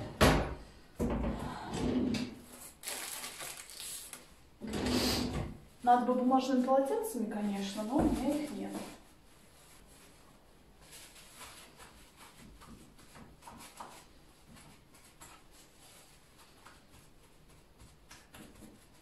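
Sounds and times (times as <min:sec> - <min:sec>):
paper napkin rustling and tapping: 0:07.6 - 0:09.0, 0:10.8 - 0:19.0.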